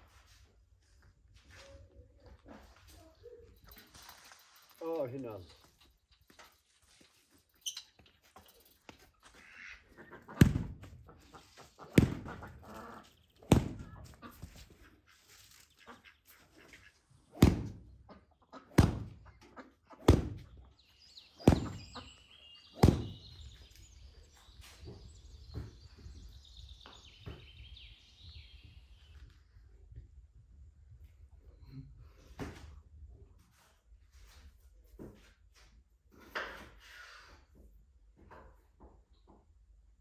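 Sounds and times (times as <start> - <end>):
small birds chirping: 1.7 - 30.0
heavy chopping blows: 10.4 - 10.9, 11.9 - 12.4, 13.4 - 14.0, 17.3 - 17.9, 18.8 - 19.2, 20.0 - 20.5, 21.4 - 22.0, 22.8 - 23.3.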